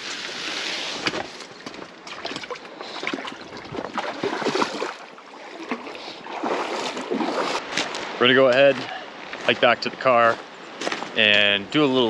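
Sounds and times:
river water sloshing and splashing: 0.0s - 8.2s.

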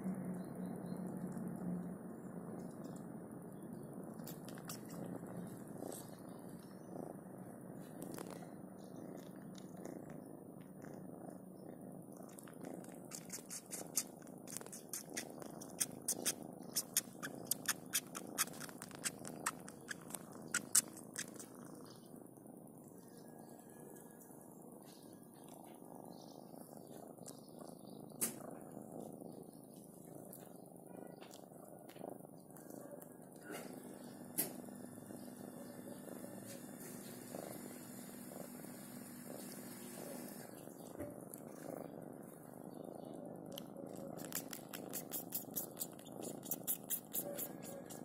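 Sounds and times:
kitten purring: 0.0s - 48.0s
kitten wet sucking clicks: 4.2s - 5.2s, 12.3s - 21.6s, 43.5s - 48.0s.

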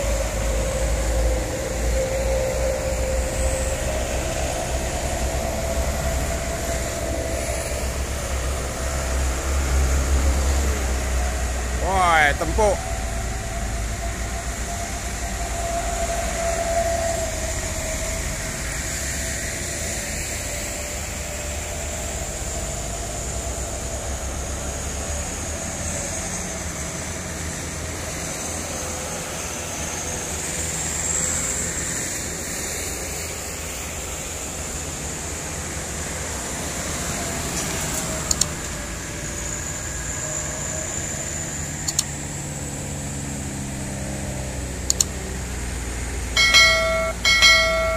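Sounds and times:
diesel truck engines labouring: 0.0s - 47.9s
short clicks: 38.3s - 38.5s, 41.8s - 42.1s, 44.9s - 45.2s.

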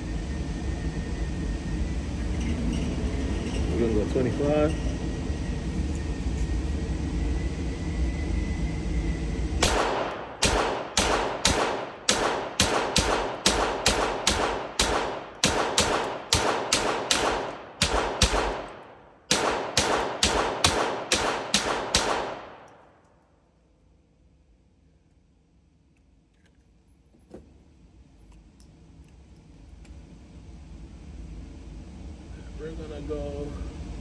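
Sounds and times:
rifle shots echoing indoors: 9.6s - 23.2s.

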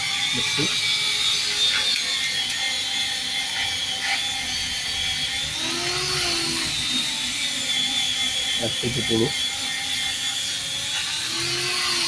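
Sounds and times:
machine whirring with high whine: 0.0s - 12.0s.

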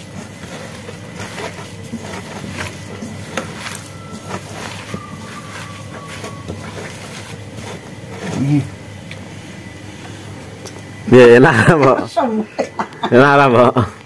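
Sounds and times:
hand kneading food in bowl: 0.0s - 9.8s
low background hum: 0.0s - 14.0s.

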